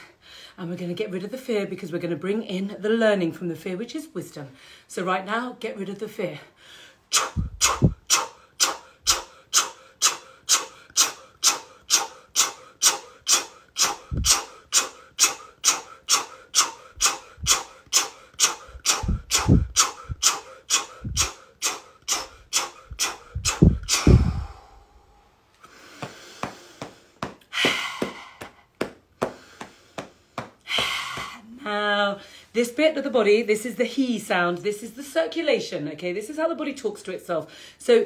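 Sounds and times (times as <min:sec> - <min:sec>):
woman's forceful breaths: 0:06.5 - 0:31.6, 0:37.5 - 0:37.8
dull low thumps: 0:07.3 - 0:08.1, 0:14.0 - 0:14.4, 0:18.7 - 0:20.3, 0:20.9 - 0:21.3, 0:22.3 - 0:24.6.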